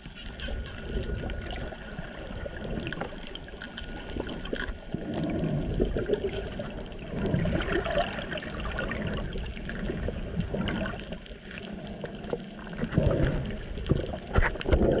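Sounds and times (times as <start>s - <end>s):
dolphin sonar clicks: 0.0s - 4.8s, 5.7s - 7.0s
bubbles: 0.0s - 11.2s
underwater rushing water: 0.0s - 15.0s.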